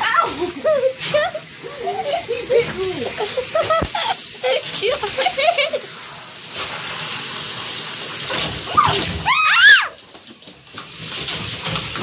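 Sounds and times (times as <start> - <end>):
shower head spraying water: 0.0 - 12.0
high-pitched cry: 8.8 - 10.0.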